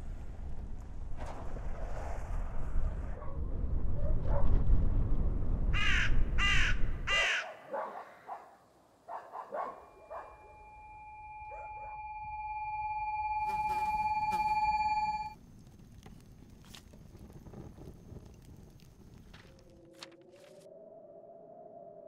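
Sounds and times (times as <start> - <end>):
crow cawing: 5.8 - 7.6
steady held tone: 9.9 - 15.4.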